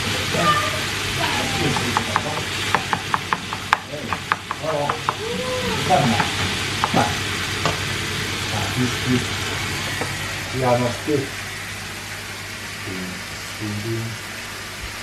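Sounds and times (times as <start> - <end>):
meat sizzling in a frying pan: 0.0 - 13.6
spatula tapping and scraping pan: 1.6 - 5.3, 6.0 - 7.9.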